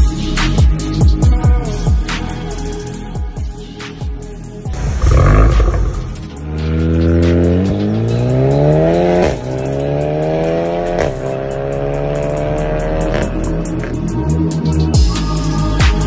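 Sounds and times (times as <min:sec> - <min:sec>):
car engine accelerating: 0:04.8 - 0:14.1.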